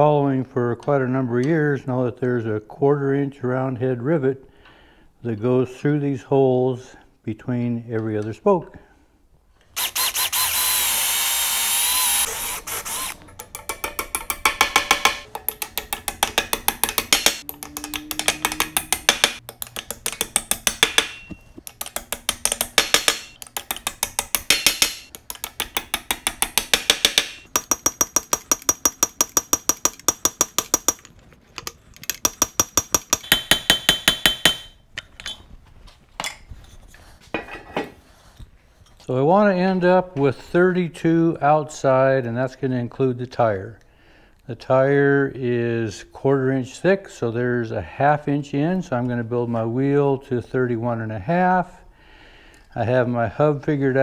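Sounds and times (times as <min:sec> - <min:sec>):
machine whir: 0:09.8 - 0:13.3
hammer tapping on steel: 0:13.4 - 0:31.1, 0:32.0 - 0:34.8
metallic ringing: 0:20.8 - 0:21.6.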